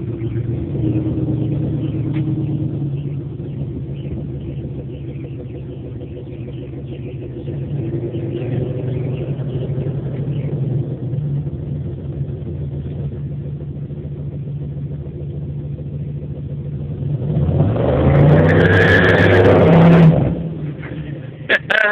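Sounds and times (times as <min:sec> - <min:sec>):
car engine revving: 0:00.0 - 0:21.9
tyre squeal: 0:18.4 - 0:19.6.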